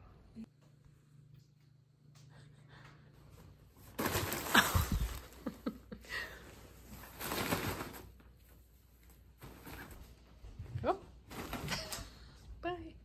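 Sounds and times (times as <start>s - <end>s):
rustling and crinkling: 3.2s - 12.4s.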